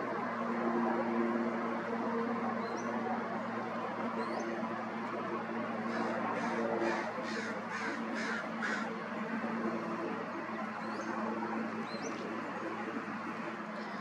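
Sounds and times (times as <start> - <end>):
propeller plane engine drone: 0.0 - 14.0
crow cawing: 5.9 - 8.9.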